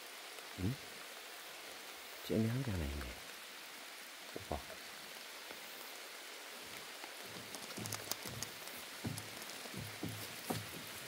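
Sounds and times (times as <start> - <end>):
rain falling: 0.0 - 11.0
sharp ticks: 7.4 - 9.7.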